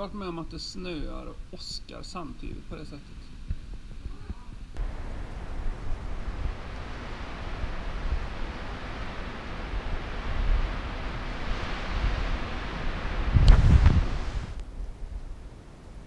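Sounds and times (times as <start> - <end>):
wind on microphone: 3.1 - 16.0
loud low thump with click: 13.4 - 14.0.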